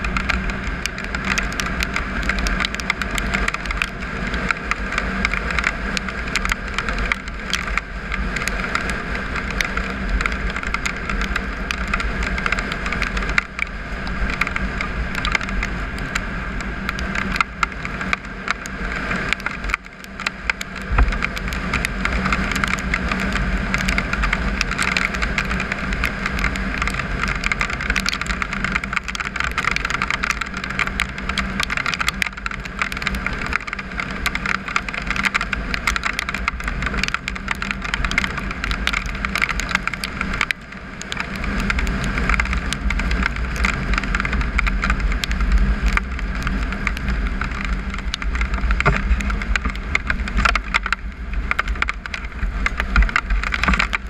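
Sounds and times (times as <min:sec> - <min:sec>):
motorcycle engine running: 0:00.0 - 0:29.4
gravel crackling under tyres: 0:00.0 - 0:54.0
riding wind noise: 0:00.0 - 0:54.0.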